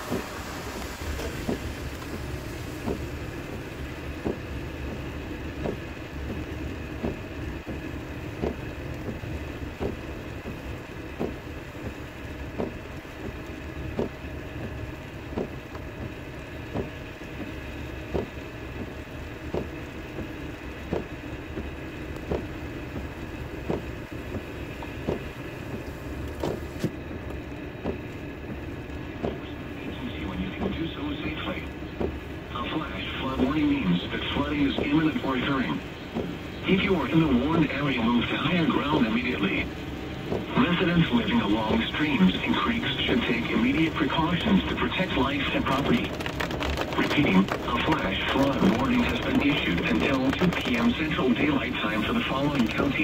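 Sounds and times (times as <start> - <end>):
tyres and engine rumbling: 0.0 - 53.0.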